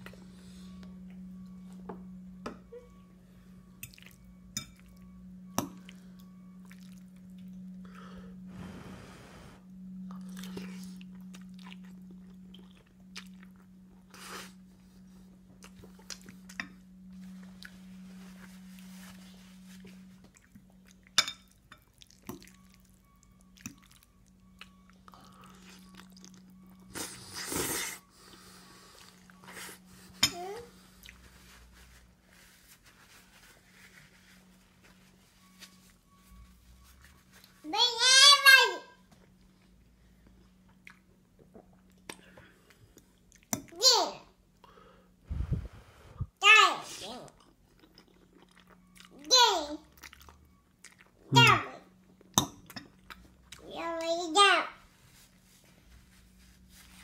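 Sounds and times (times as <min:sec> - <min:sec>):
steady low hum: 0:00.0 - 0:37.8, 0:39.0 - 0:46.4.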